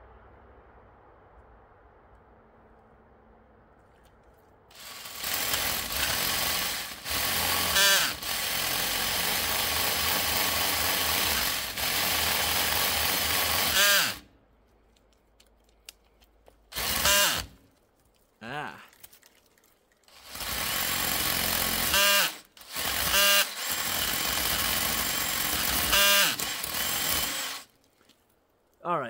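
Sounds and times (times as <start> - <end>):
drill powered chainsaw cutting branch: 4.7 - 14.3, 16.7 - 17.6, 20.1 - 27.8.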